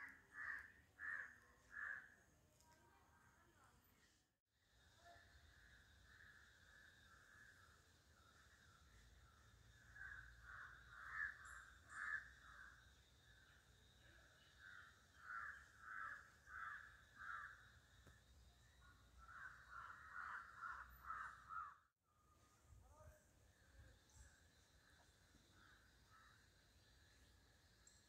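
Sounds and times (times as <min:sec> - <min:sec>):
crows cawing: 0:00.0 - 0:02.1, 0:10.0 - 0:12.7, 0:14.6 - 0:17.7, 0:19.2 - 0:21.8.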